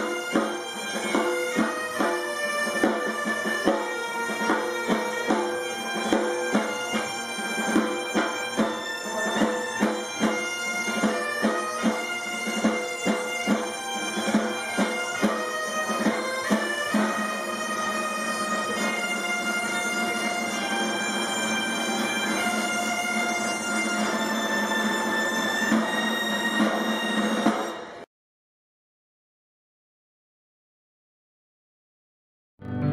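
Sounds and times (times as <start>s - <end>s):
side drum beating: 0.0s - 17.5s
bagpipes playing over drone: 0.0s - 28.0s.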